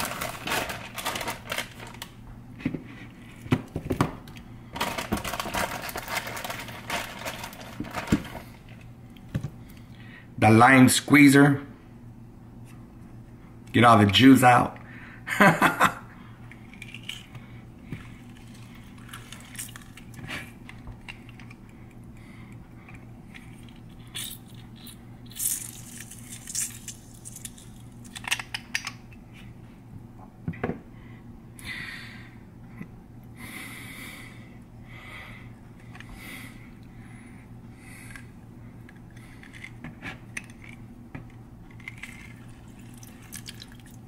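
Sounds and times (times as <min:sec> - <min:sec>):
faint low hum: 0:00.0 - 0:44.0
juice dripping into bowl: 0:41.8 - 0:44.0.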